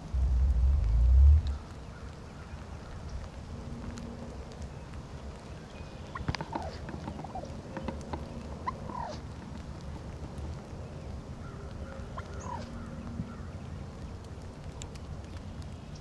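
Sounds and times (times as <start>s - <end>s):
steady low rumble: 0.0s - 16.0s
turkeys gobbling: 6.1s - 10.0s, 11.5s - 13.0s.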